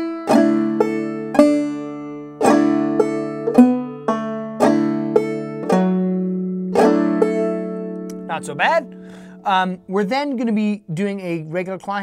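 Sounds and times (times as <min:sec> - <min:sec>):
banjo played clawhammer style: 0:00.0 - 0:10.2.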